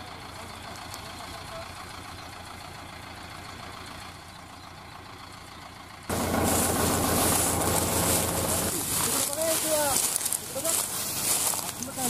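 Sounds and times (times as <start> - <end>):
tractor diesel engine idling: 0.0 - 12.0
broad hiss: 6.1 - 10.0.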